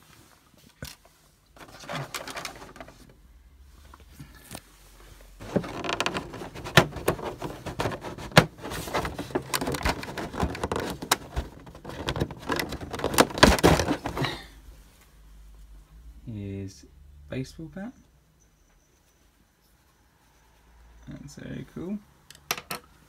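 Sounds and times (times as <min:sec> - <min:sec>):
plastic tray crackling and clicking: 0:05.4 - 0:14.2.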